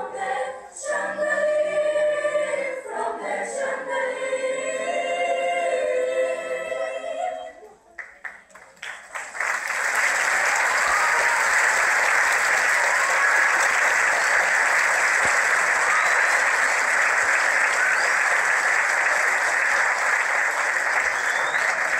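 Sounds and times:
audience applauding: 8.0 - 21.9.

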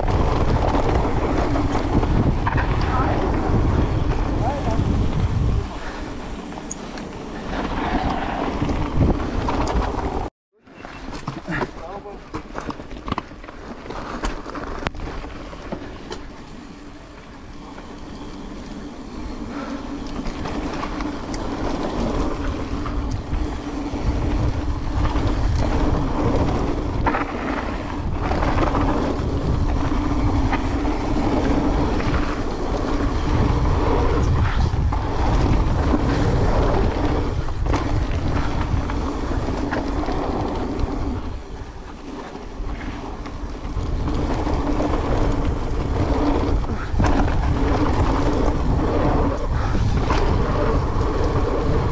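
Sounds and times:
wind rushing over microphone: 0.0 - 10.3, 14.4 - 51.9
bike rattling: 0.0 - 51.9
tyres rolling on dirt: 0.0 - 51.9.

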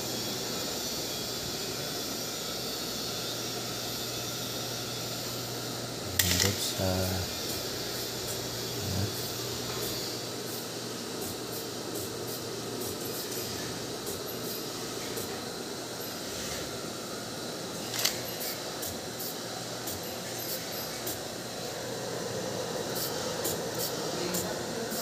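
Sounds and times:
sewing machine motor whirring: 0.0 - 17.0, 17.7 - 25.0
sharp click: 6.2 - 6.6.

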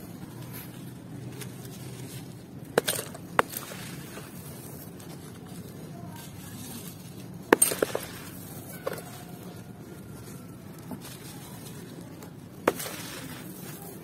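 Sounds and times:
hands crushing dry sand and cement: 0.0 - 14.0.

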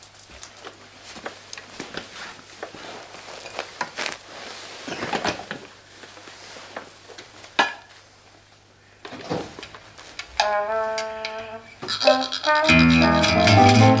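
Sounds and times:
rustling and handling noises: 0.0 - 10.4.

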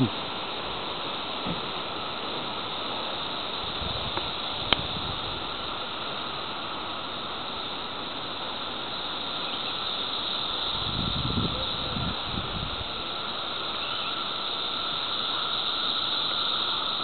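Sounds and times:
cicadas droning: 0.0 - 17.0
wind noise on microphone: 3.6 - 5.6, 10.7 - 13.1.

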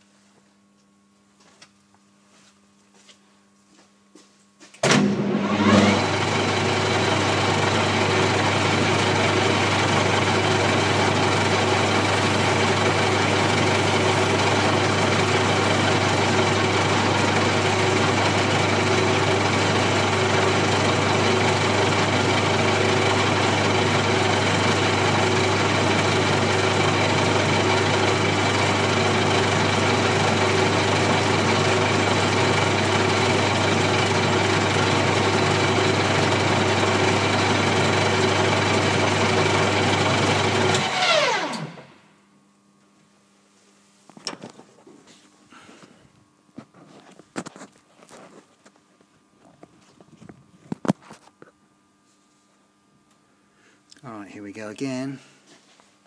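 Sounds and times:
lathe running with low hum: 5.0 - 42.2.

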